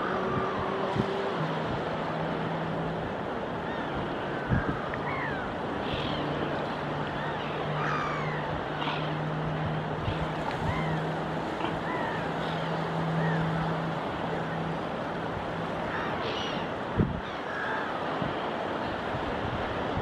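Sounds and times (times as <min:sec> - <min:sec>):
gulls calling: 0:00.0 - 0:20.0
wind and surf: 0:00.0 - 0:20.0.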